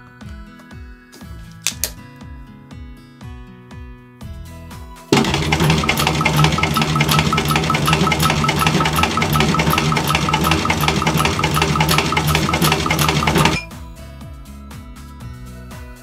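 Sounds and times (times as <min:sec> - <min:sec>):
industrial sewing machine stitching: 0:05.2 - 0:13.7.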